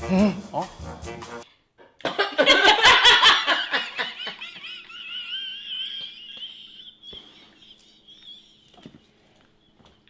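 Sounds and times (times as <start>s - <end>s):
woman laughing squealing: 2.7s - 9.0s.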